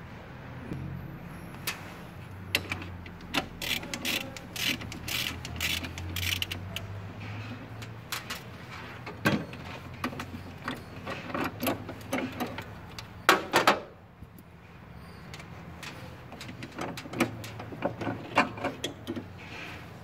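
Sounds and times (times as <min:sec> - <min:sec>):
wrench and metal parts clicking: 0:02.5 - 0:07.0, 0:07.7 - 0:08.6.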